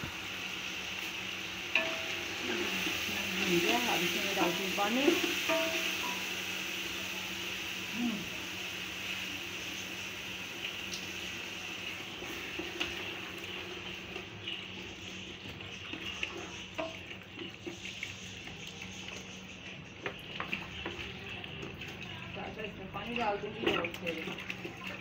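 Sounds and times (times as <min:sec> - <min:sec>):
water pouring and glugging: 0:15.4 - 0:25.0.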